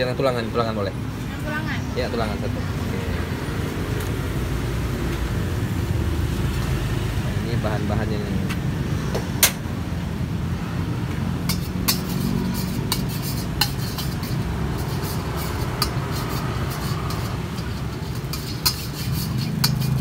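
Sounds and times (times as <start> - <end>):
metal spatula scraping a wok: 11.4 - 20.0.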